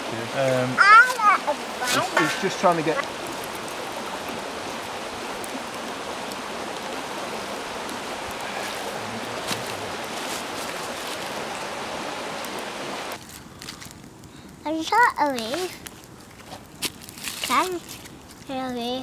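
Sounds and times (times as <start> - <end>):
water rushing over stones: 0.0 - 13.3.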